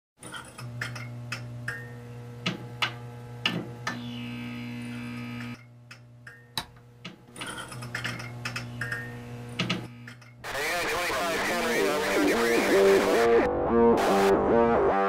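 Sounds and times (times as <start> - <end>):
low electrical hum: 0.2 - 10.5
sharp clicks and ticks: 5.4 - 9.0.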